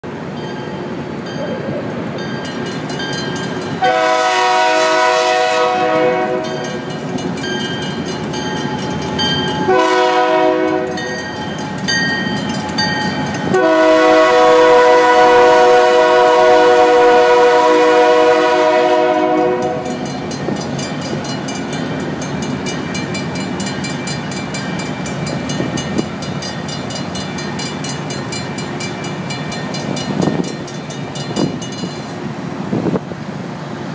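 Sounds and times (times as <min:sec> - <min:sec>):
crossing bells ringing: 0:00.3 - 0:32.4
locomotive air horn blasts: 0:03.8 - 0:06.7, 0:09.7 - 0:11.1, 0:13.5 - 0:20.0.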